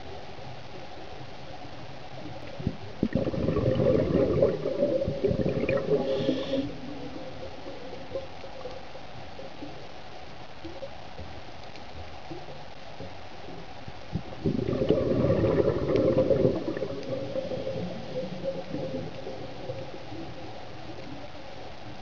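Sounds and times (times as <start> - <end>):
underwater ambience: 0.0 - 22.0
loud bubbling: 2.6 - 6.6, 14.2 - 19.2.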